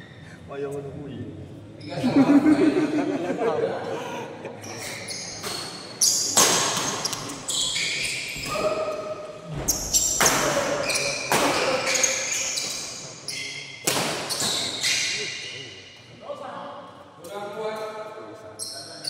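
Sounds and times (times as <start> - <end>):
shoe squeaks: 4.6 - 16.0, 17.7 - 19.0
racket hitting shuttlecock: 6.3 - 7.2, 13.8 - 14.4.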